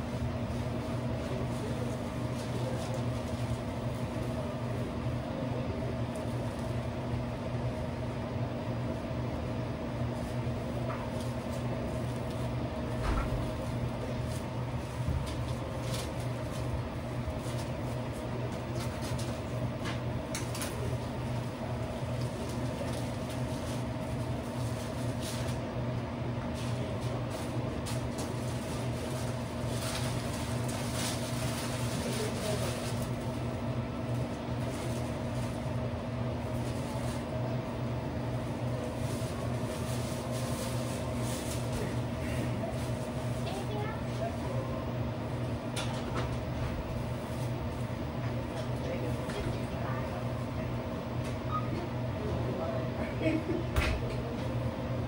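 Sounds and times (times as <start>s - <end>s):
mechanical hum of equipment: 0.0s - 55.0s
rustles and clicks of wrapping: 10.2s - 19.5s, 22.0s - 25.7s, 26.5s - 33.4s, 34.2s - 35.7s, 38.4s - 44.4s.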